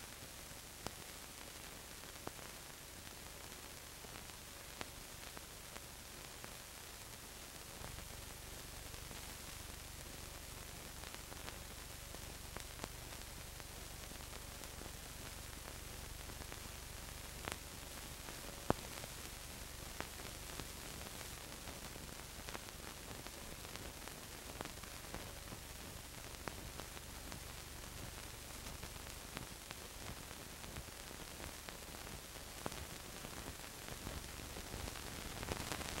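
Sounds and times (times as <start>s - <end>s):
faint clicks and crackles: 0.0s - 36.0s
steady hiss and low hum: 0.0s - 36.0s.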